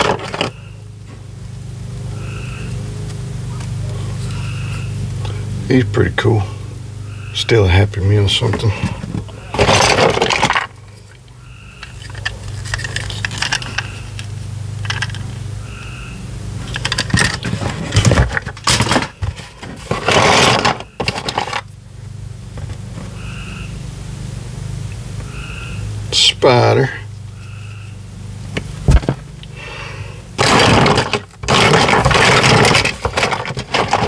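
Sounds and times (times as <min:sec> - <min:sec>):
plastic toys clattering in box: 0:00.0 - 0:00.6, 0:08.6 - 0:10.8, 0:11.8 - 0:15.3, 0:16.7 - 0:21.7, 0:30.4 - 0:34.0.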